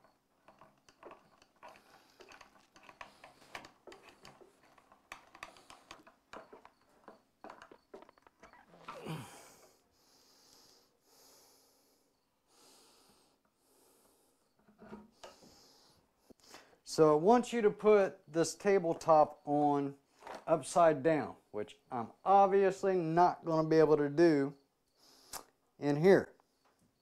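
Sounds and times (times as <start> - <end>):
short falling groan: 8.8 - 9.6
slow heavy breaths: 8.9 - 16.8.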